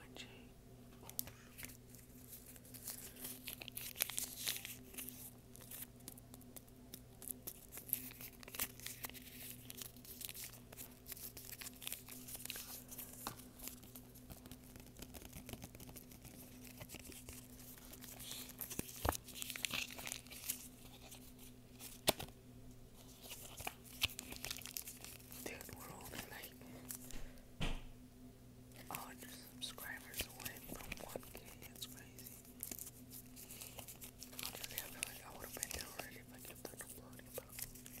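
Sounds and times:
faint steady hum: 0:00.0 - 0:38.0
playing cards scratching and rustling: 0:01.2 - 0:22.3, 0:23.0 - 0:27.1, 0:28.9 - 0:38.0.

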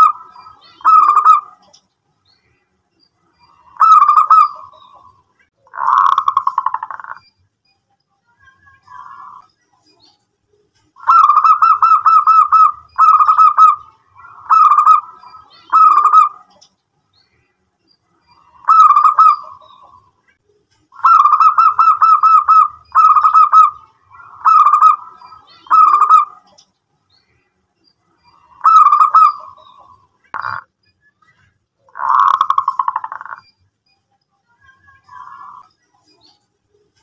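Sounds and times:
dove cooing: 0:00.0 - 0:01.7, 0:03.6 - 0:05.1, 0:11.0 - 0:16.6, 0:18.4 - 0:20.0, 0:21.0 - 0:26.5, 0:28.3 - 0:30.6, 0:31.9 - 0:33.4.

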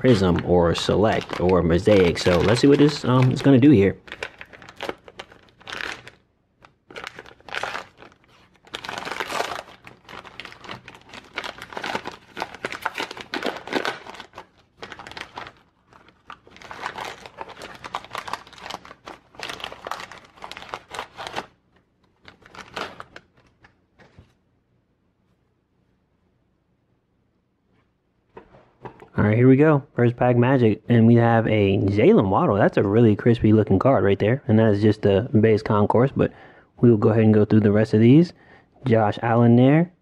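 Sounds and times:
foil wrapper crinkling: 0:00.0 - 0:23.8.

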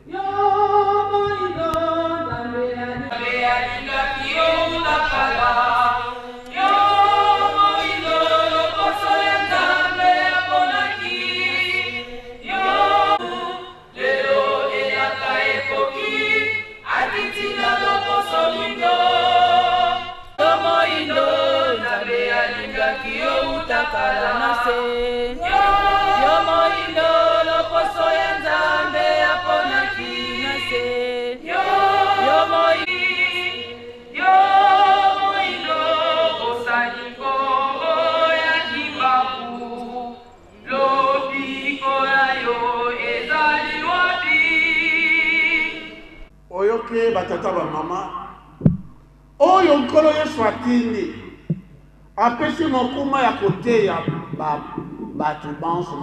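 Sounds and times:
congregation singing a hymn: 0:00.0 - 0:46.4.

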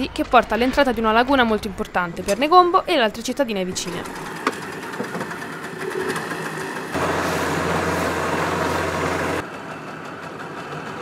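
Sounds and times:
motorboat engine running: 0:04.0 - 0:11.0.

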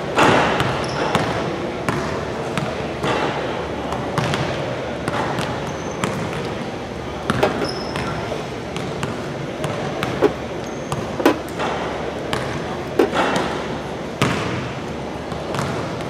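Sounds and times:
basketballs bouncing on hardwood: 0:07.3 - 0:08.1, 0:08.8 - 0:11.7.

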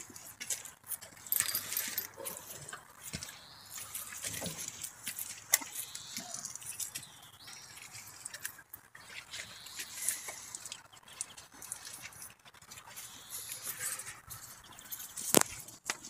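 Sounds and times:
hooves shuffling in mud: 0:00.0 - 0:16.0.

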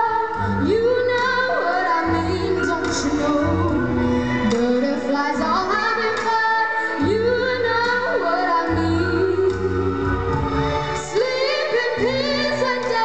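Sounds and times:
backing music: 0:00.0 - 0:13.0.

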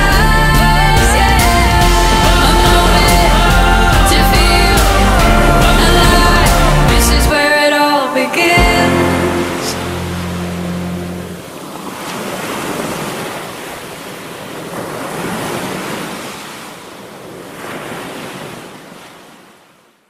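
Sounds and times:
held music chord: 0:00.0 - 0:11.6
sea waves washing onto beach: 0:08.8 - 0:19.7.

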